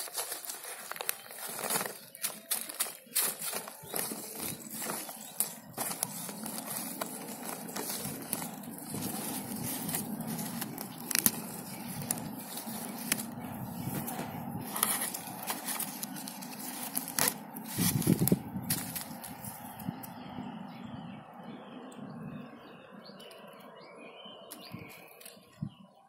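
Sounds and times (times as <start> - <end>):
leaves and grass rustling: 0.0 - 20.1.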